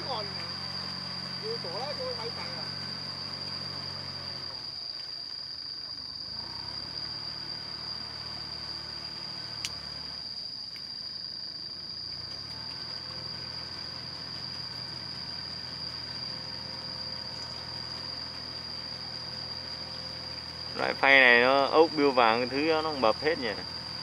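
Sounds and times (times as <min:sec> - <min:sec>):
diesel tractor running: 0:00.0 - 0:04.6, 0:12.2 - 0:24.0
high-pitched whine: 0:00.0 - 0:24.0
sharp click: 0:09.6 - 0:09.8.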